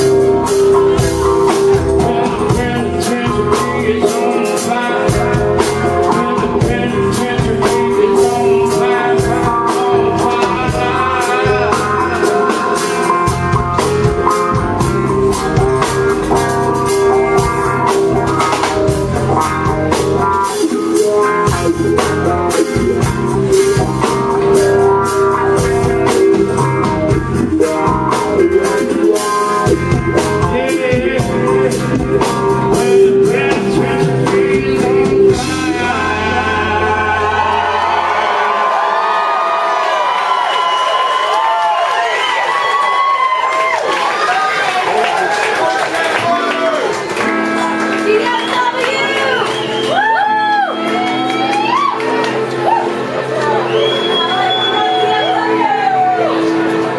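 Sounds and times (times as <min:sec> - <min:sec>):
rock band playing: 0:00.0 - 0:56.9
man singing: 0:00.4 - 0:38.2.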